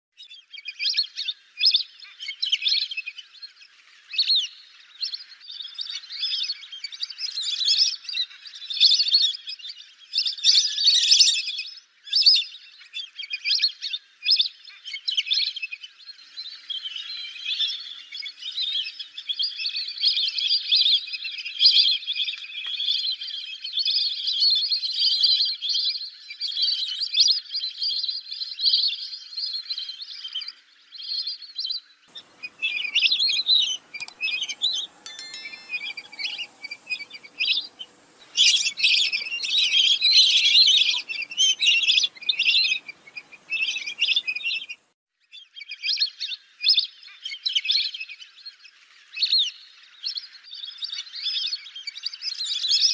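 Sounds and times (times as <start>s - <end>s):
ducks whistling shrilly: 32.1s - 44.8s.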